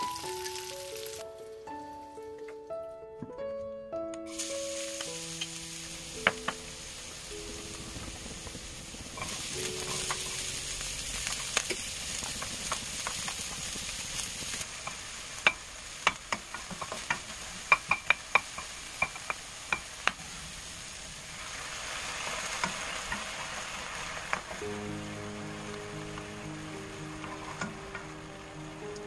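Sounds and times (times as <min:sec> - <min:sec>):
garlic and onion sizzling in oil: 0:00.0 - 0:02.2, 0:04.3 - 0:29.0
wooden spatula knocking against pan: 0:06.2 - 0:06.6, 0:14.8 - 0:20.2.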